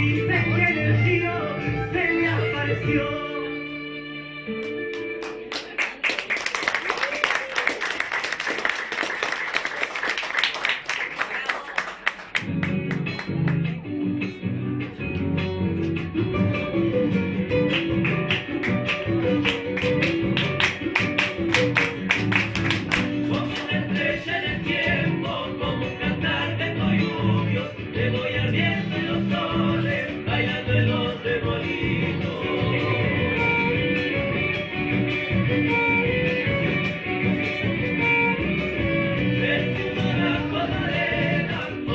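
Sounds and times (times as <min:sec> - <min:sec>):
acoustic guitar strumming: 0:12.4 - 0:41.9
folk band playing: 0:15.2 - 0:25.6, 0:31.6 - 0:41.9.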